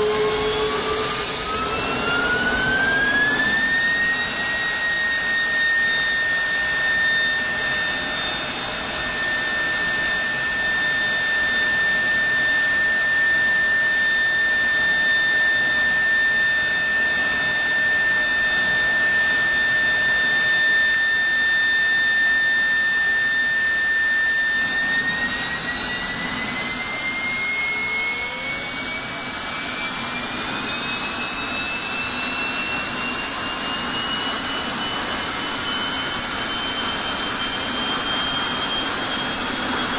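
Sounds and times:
jet engine rushing roar: 0:00.0 - 0:09.2, 0:22.9 - 0:39.9
jet engine high whine: 0:00.0 - 0:39.9.

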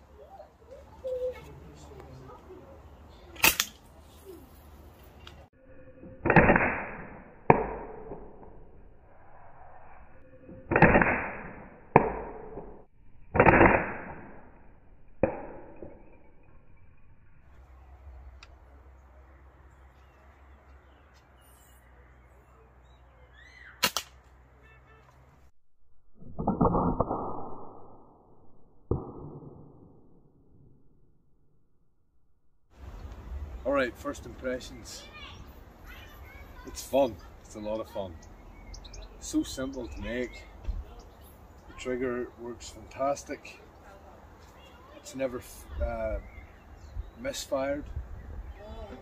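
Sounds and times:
slingshot rifle firing cracks: 0:03.3 - 0:03.9, 0:06.2 - 0:08.5, 0:10.6 - 0:14.6, 0:23.8 - 0:24.3
slingshot bands snapping: 0:03.4 - 0:03.9, 0:23.8 - 0:24.3.

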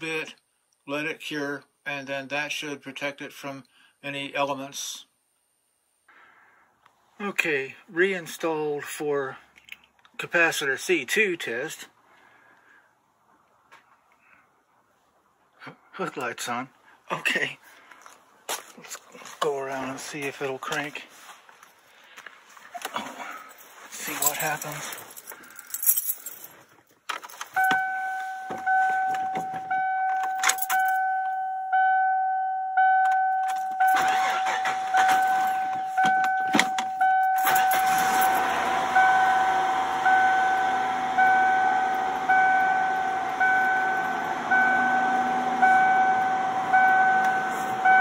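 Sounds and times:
keys rattling in ignition: 0:22.8 - 0:31.5, 0:33.0 - 0:38.6
truck warning chime dinging: 0:27.5 - 0:48.0
engine idling: 0:33.8 - 0:36.0, 0:37.4 - 0:48.0.

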